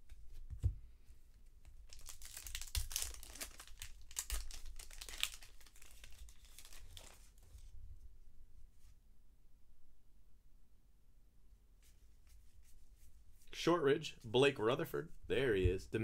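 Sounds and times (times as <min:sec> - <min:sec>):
wrapper crinkling: 0:01.8 - 0:07.7.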